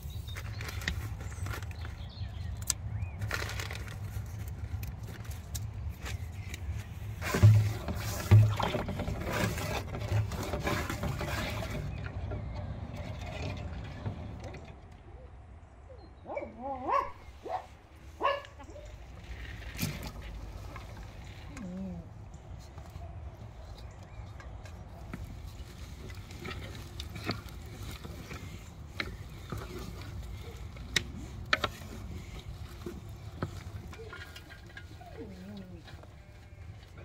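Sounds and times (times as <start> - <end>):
wooden spoon scraping metal pot: 5.8 - 14.7, 18.6 - 37.0.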